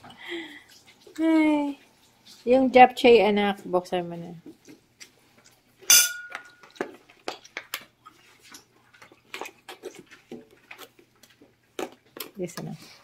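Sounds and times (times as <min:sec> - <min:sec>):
dishes and containers clicking: 0:05.9 - 0:06.8.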